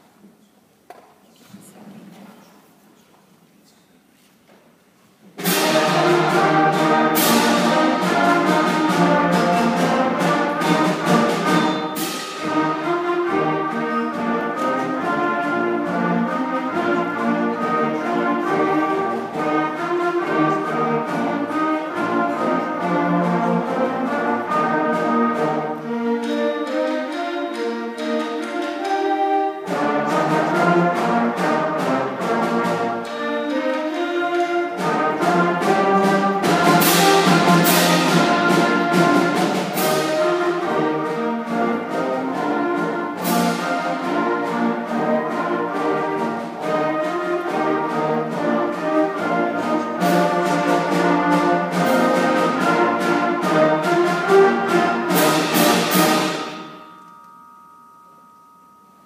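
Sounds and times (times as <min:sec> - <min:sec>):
sharp percussion hits: 0:05.4 - 0:16.8, 0:24.8 - 0:59.0
concert band playing: 0:05.4 - 0:57.0.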